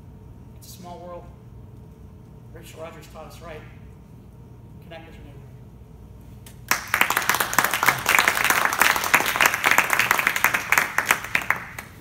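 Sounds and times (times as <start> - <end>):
small group applauding: 6.6 - 12.0.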